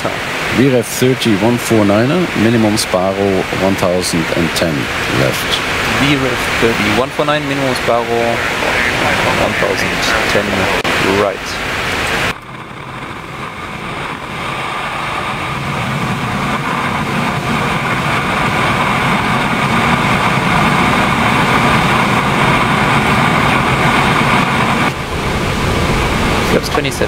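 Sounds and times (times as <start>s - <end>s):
jet engines droning and whining: 0.0s - 27.0s
rush of airflow: 0.0s - 27.0s.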